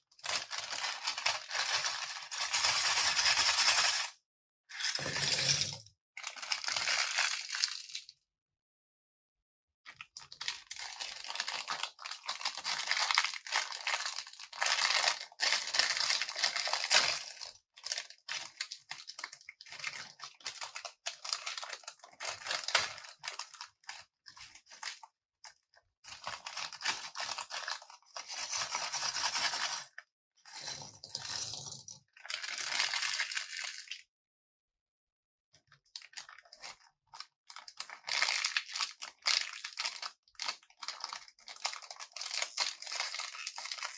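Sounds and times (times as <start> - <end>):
plastic bag crinkling and tearing: 0.1 - 4.1, 4.8 - 7.8, 10.2 - 25.0, 26.1 - 30.0, 32.2 - 34.0, 36.0 - 43.9.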